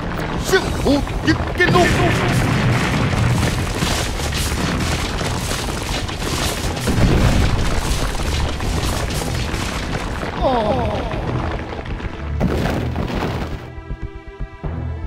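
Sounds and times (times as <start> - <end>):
explosion rumble: 0.0 - 14.0
music: 0.0 - 15.0.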